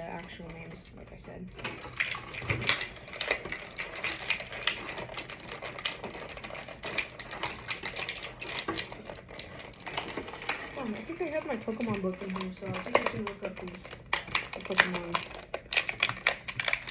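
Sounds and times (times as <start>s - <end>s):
plastic packaging crinkling: 0.0s - 16.9s.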